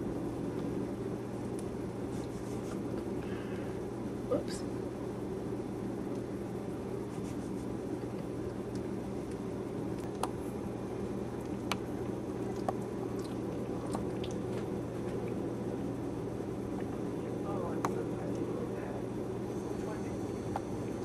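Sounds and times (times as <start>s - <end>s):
low hum: 0.0s - 21.0s
puppies nursing mouth sounds: 11.4s - 15.5s.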